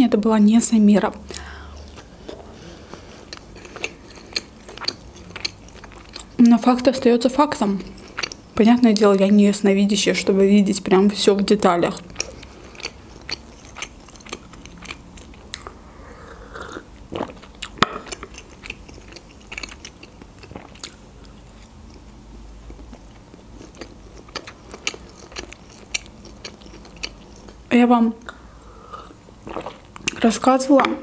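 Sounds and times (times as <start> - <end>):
chewing and biting food: 1.8 - 6.4, 7.7 - 9.1, 12.0 - 15.8, 16.6 - 21.8, 22.7 - 27.7, 29.4 - 31.0.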